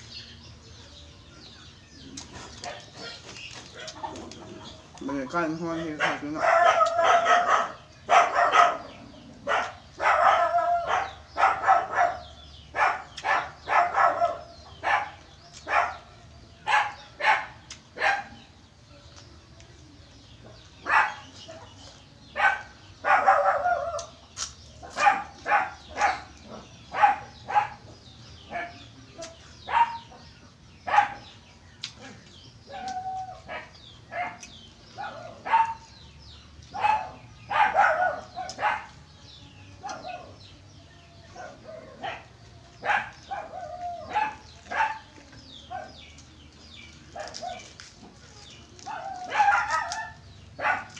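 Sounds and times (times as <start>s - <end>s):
dog barking: 5.8s - 18.4s, 20.8s - 21.7s, 22.3s - 24.1s, 24.8s - 27.9s, 28.5s - 31.4s, 32.7s - 35.9s, 36.8s - 39.0s, 41.3s - 46.1s, 47.2s - 47.7s, 48.9s - 50.9s
crunchy food being chewed: 6.1s - 12.1s, 12.8s - 16.1s, 16.7s - 18.0s, 19.1s - 27.9s, 31.6s - 35.9s, 41.2s - 50.9s.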